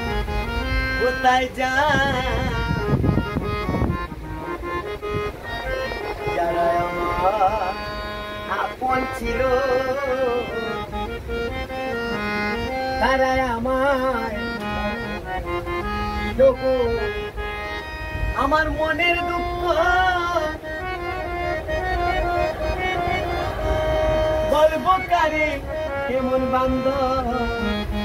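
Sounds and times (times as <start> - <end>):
harmonium playing chords: 0.0 - 28.0
man singing: 1.0 - 3.1, 6.0 - 11.1, 12.9 - 17.4, 18.3 - 28.0.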